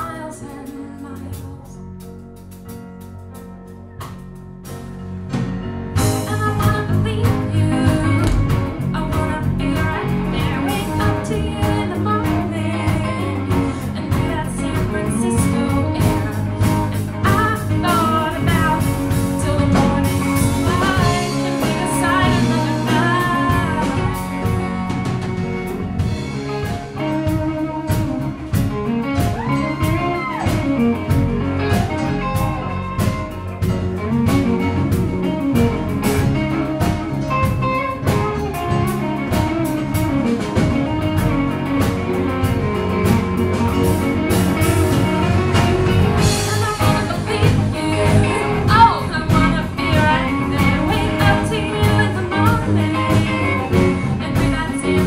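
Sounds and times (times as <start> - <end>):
woman singing: 0.0 - 2.0, 6.0 - 25.0, 43.6 - 55.0
live blues rock band: 0.0 - 55.0.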